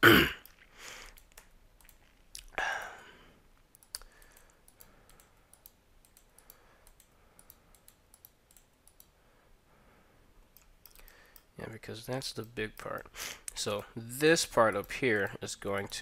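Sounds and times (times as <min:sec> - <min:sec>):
computer mouse clicks: 0:00.4 - 0:02.1, 0:03.6 - 0:09.2, 0:10.4 - 0:11.5.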